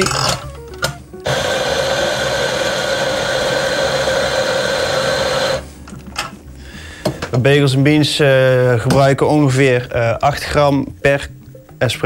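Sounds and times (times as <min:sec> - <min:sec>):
espresso grinder running: 0:01.2 - 0:05.7.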